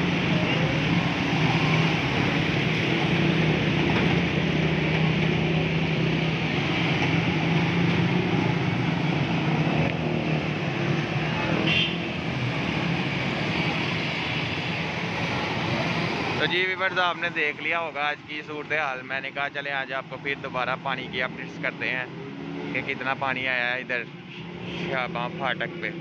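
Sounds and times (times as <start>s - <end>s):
motorcycle engines running: 0.0s - 16.5s.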